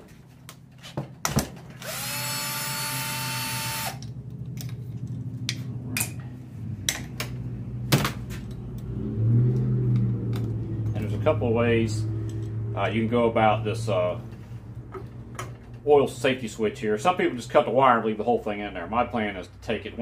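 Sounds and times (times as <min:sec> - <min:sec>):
cordless drill motor whine: 0:01.8 - 0:04.1
light clicks and knocks of tools: 0:12.2 - 0:12.6.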